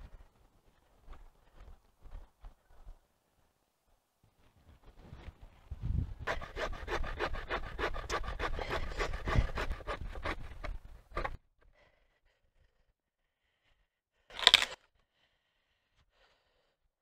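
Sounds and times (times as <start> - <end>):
saw cutting wood: 6.3 - 11.4.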